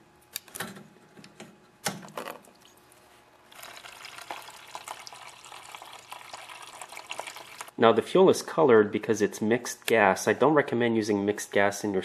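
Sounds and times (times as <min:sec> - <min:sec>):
fuel stream splashing into tub: 0:03.5 - 0:07.7.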